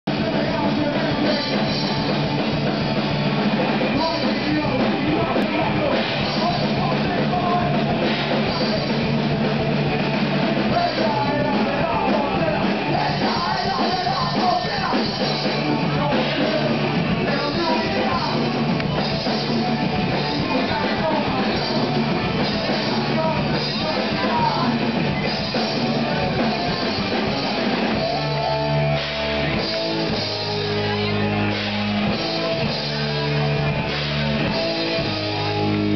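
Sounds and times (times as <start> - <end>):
rock band playing live: 0.0 - 35.9.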